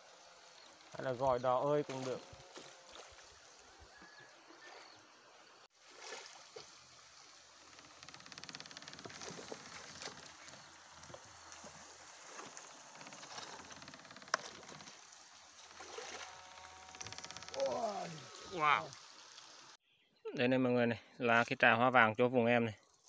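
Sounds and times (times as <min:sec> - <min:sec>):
faint running stream: 0:00.0 - 0:19.8, 0:20.7 - 0:23.0
splashes and clicks: 0:07.7 - 0:17.6.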